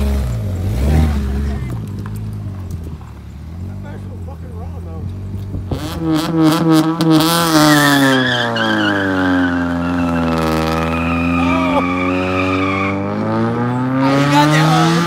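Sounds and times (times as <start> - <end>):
car engine revving: 0.0 - 15.0
tires squealing: 7.1 - 15.0.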